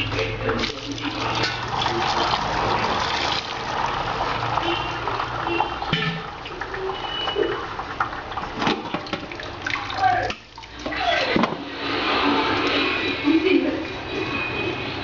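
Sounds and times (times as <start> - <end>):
tap water running into bowl: 0.0 - 11.7.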